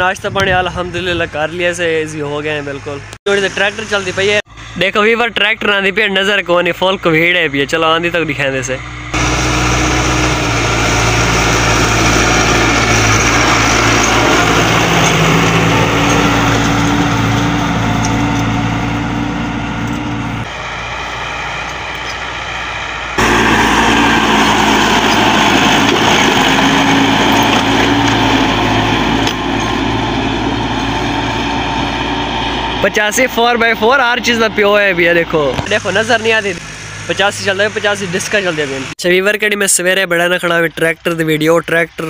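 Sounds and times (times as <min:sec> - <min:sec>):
tractor diesel engine under load: 0:00.0 - 0:42.0.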